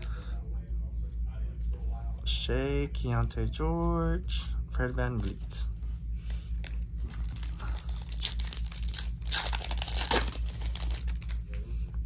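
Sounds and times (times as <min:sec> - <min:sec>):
foil wrapper tearing and crinkling: 0:07.1 - 0:11.6.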